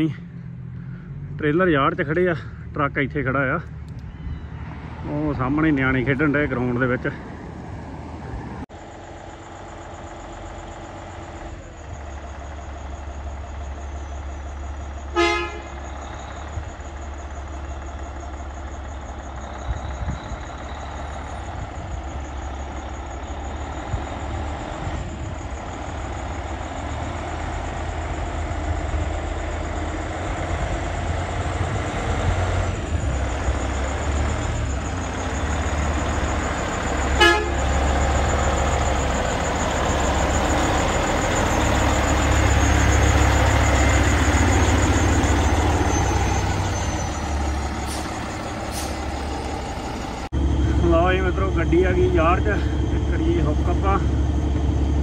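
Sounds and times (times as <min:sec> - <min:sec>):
truck diesel engine rumbling: 0:00.0 - 0:55.0
truck horn toots: 0:15.0 - 0:16.1, 0:36.8 - 0:38.1.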